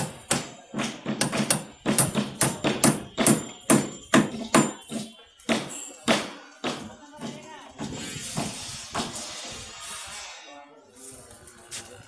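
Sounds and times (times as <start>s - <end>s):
hammer driving nails into wood: 0.0s - 6.9s.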